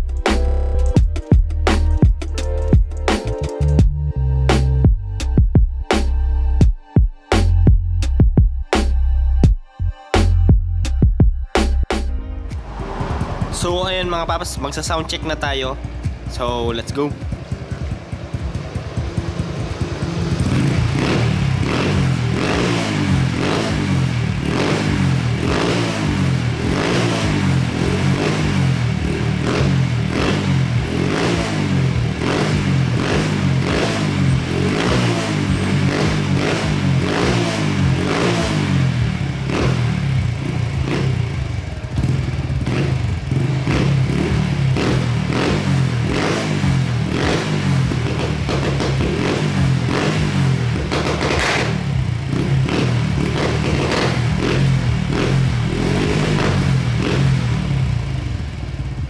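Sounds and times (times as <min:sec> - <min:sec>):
motorcycle engine revving: 0:12.6 - 0:59.0.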